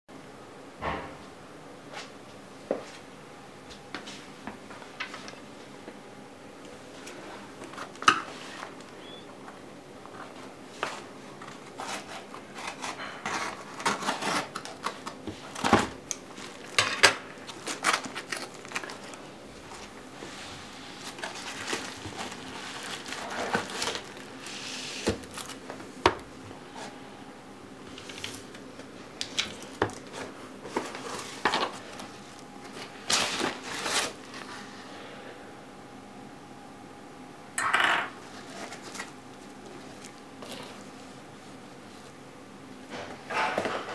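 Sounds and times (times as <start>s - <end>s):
envelope crinkling: 10.8s - 20.0s, 21.0s - 25.8s, 27.9s - 34.7s
scissors snipping paper: 11.7s - 16.2s.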